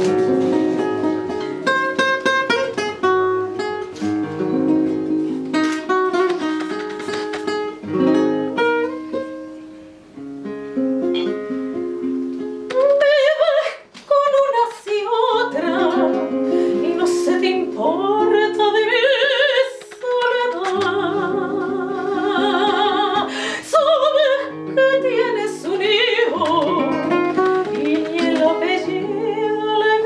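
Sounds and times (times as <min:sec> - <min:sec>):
acoustic guitar plucked: 0:00.0 - 0:30.0
woman singing with vibrato: 0:12.7 - 0:30.0.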